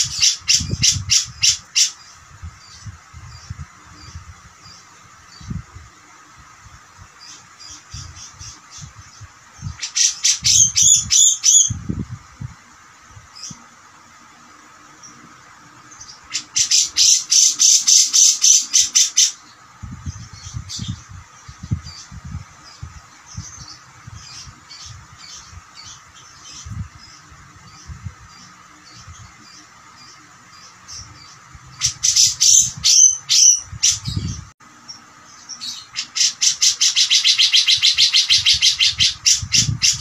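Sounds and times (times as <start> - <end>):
bird calling harsh rapid notes: 16.1 - 19.6, 35.6 - 40.0.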